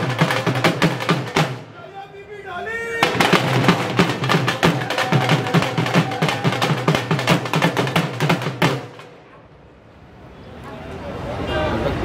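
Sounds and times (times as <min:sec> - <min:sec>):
music with fast drumming: 0:00.0 - 0:01.7, 0:03.0 - 0:09.1.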